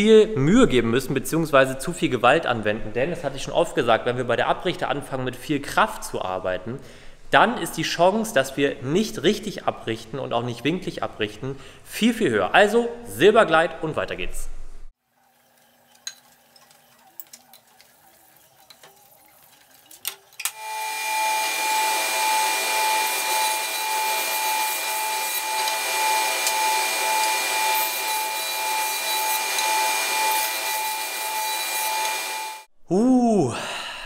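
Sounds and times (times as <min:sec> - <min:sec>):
jointer-planer cutting wood: 0:20.4 - 0:32.7.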